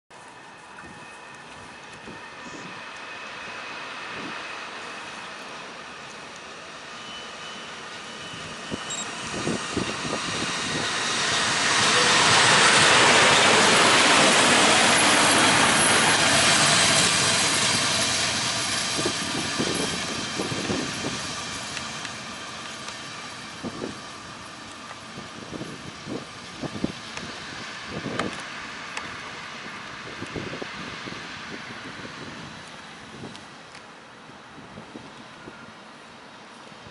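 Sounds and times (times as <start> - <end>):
electric locomotive passing: 0.2 - 36.9.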